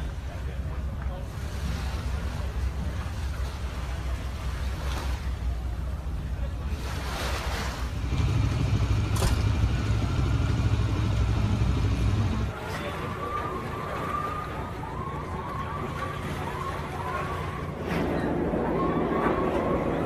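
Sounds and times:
heavy low engine rumble: 0.0 - 20.0
siren yelping: 13.0 - 20.0.

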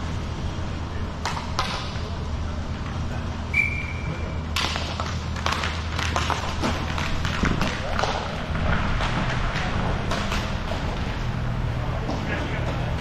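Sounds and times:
steady low hum: 0.0 - 13.0
whistle tone: 3.5 - 4.4
hockey sticks clattering on tiles: 4.6 - 11.0.

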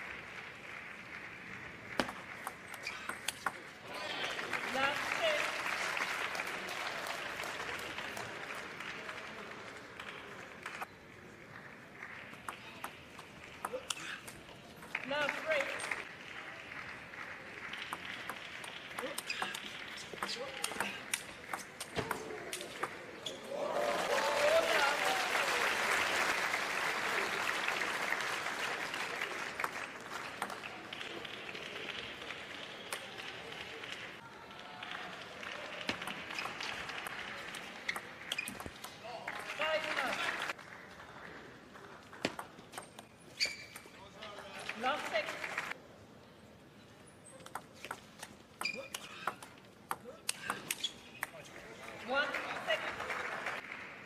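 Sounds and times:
audience applauding: 0.0 - 2.5, 3.9 - 10.9, 14.9 - 20.0, 23.5 - 38.3, 39.0 - 41.5, 44.6 - 45.8, 51.9 - 54.0
table tennis ball clicks: 47.4 - 51.4.

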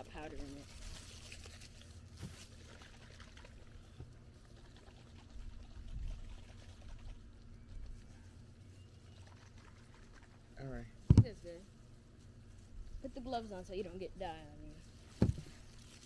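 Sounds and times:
sloshing squeeze bottles shaken: 0.0 - 7.3, 9.1 - 10.5
soft knocks: 15.2 - 15.5.

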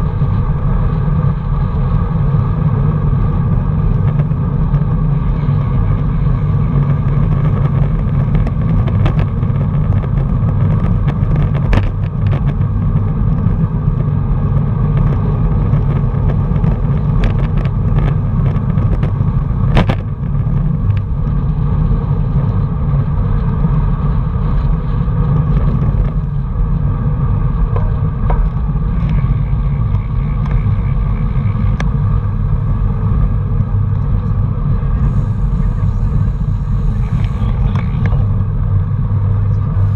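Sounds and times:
wind rushing over microphone: 0.0 - 39.9
bike clicks and knocks: 27.5 - 32.1.

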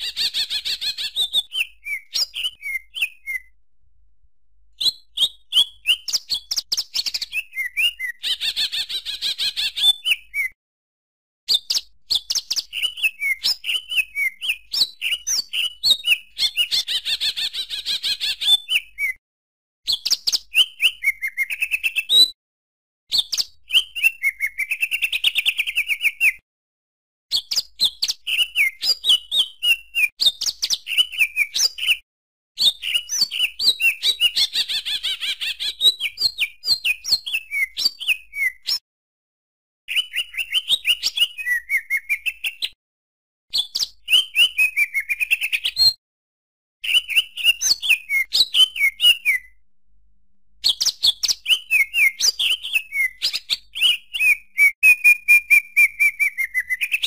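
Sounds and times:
bird singing chirps and trills: 0.0 - 3.5, 4.7 - 10.6, 11.5 - 19.2, 32.6 - 38.8, 39.9 - 42.8, 46.8 - 49.6, 50.6 - 57.0.

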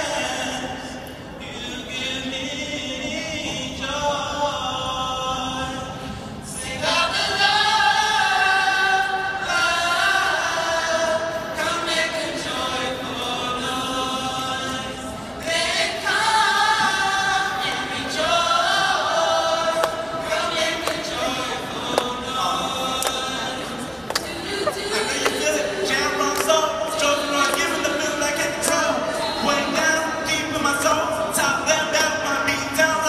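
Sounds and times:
choir singing chords: 5.2 - 30.4.

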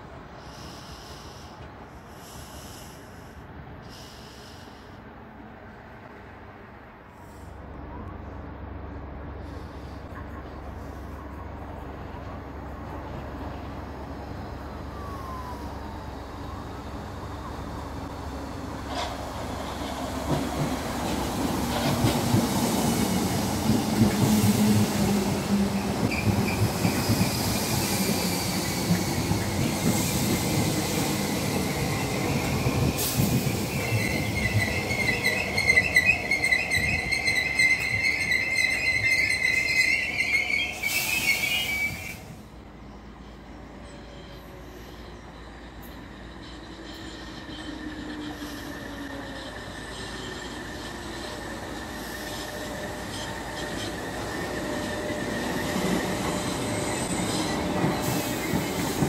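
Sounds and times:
electric train rumble: 0.0 - 59.0
train brakes squealing: 13.5 - 59.0.

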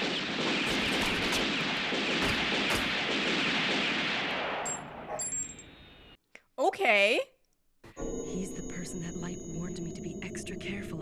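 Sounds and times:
automatic gunfire: 0.0 - 4.6.

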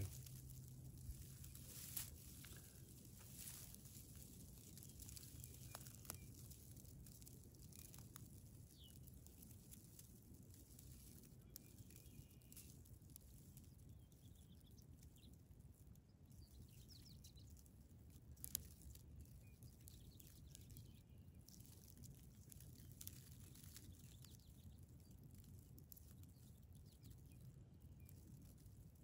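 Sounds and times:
low wind rumble: 0.0 - 6.8.

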